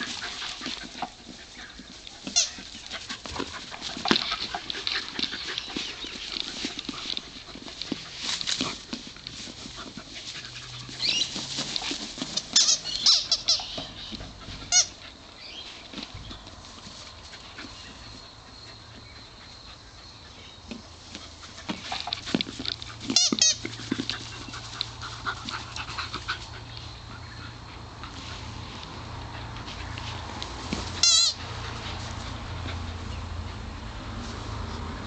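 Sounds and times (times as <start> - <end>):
squeaky dog toy squeaking: 12.6 - 13.8, 23.1 - 23.6, 31.0 - 31.4.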